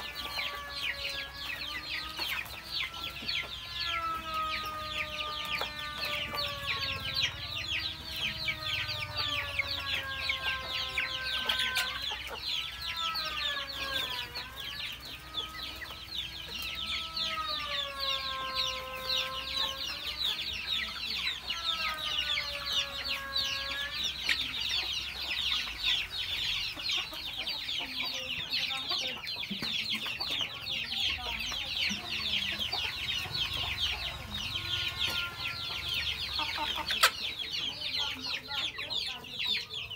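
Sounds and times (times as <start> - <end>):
chicks clucking and cheeping: 0.0 - 39.9.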